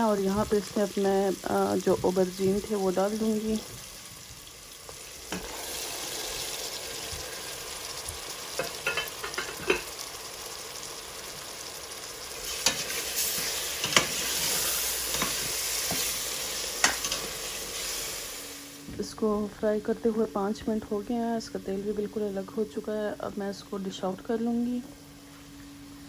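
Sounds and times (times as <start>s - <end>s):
food sizzling in a pot: 0.0s - 19.3s.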